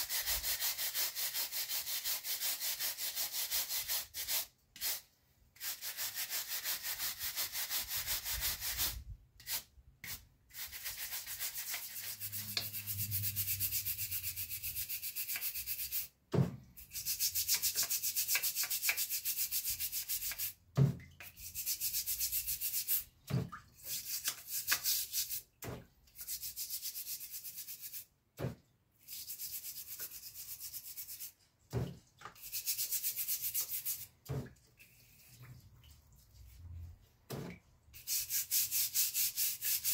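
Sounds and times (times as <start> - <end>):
wire brush rasping on metal: 10.6 - 16.1.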